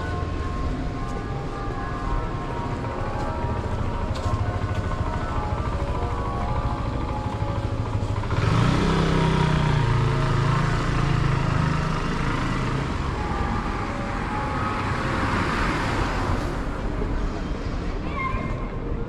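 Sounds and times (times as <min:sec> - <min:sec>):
street traffic noise: 0:00.0 - 0:19.0
motor scooter driving past: 0:06.3 - 0:13.2.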